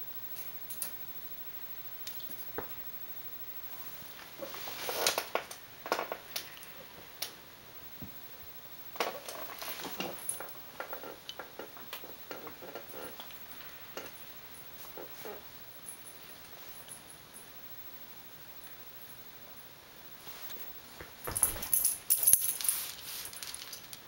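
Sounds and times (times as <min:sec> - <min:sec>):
claws ticking on tile floor: 0:09.0 - 0:16.2, 0:21.0 - 0:24.0.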